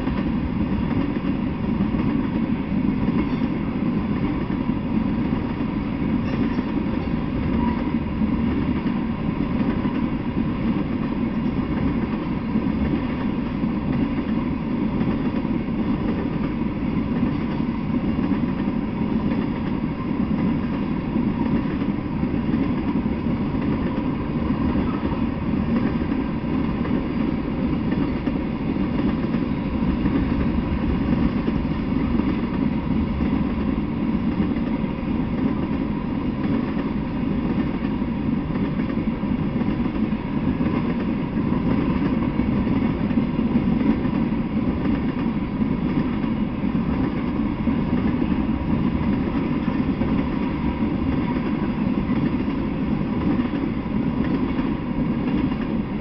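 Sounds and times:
freight train rumbling: 0.0s - 56.0s.

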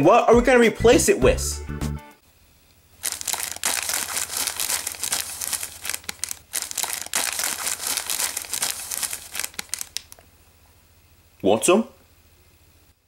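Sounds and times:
plastic chip bag crinkling: 3.0s - 10.3s.

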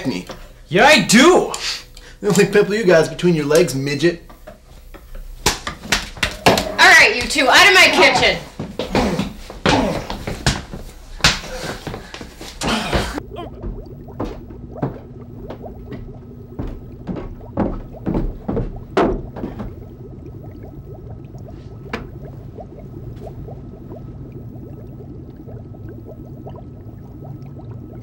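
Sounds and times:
footsteps on wooden stairs: 8.1s - 19.9s
steady hum with high tone: 11.8s - 28.0s.

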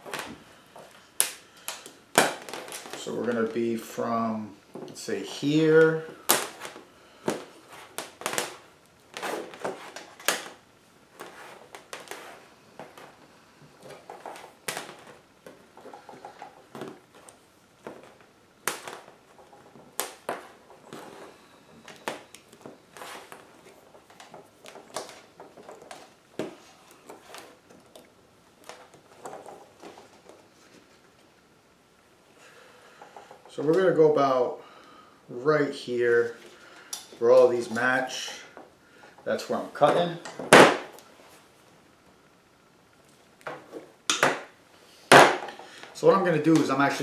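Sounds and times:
wire rustling: 0.0s - 31.6s.

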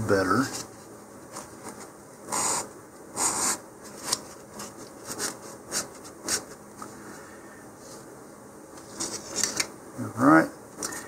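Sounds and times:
sandpaper rubbing on paper tube: 2.3s - 3.6s.

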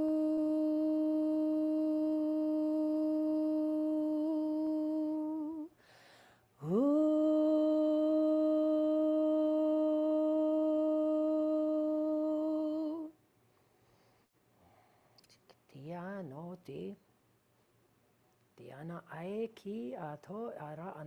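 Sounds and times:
woman breathing: 5.7s - 6.6s, 13.5s - 15.2s
woman toning a long note: 6.6s - 13.1s.

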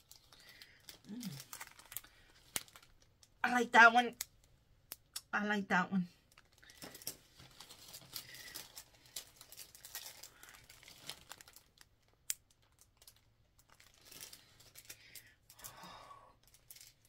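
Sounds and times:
plastic bags crinkling: 0.0s - 3.4s, 6.3s - 17.0s.

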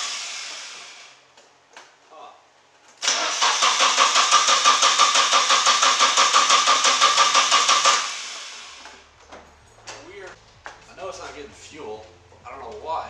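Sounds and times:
starter cranking engine: 3.0s - 9.0s
starter whine: 3.0s - 9.1s.

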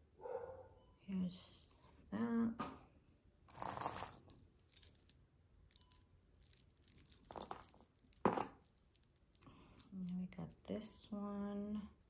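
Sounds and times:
jewelry chains and beads clinking: 3.5s - 10.6s.

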